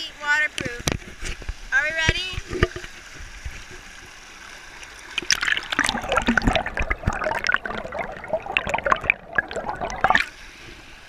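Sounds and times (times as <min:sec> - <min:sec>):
underwater bubbling and gurgling: 0:00.6 - 0:11.0
water rushing over rocks: 0:05.1 - 0:10.4.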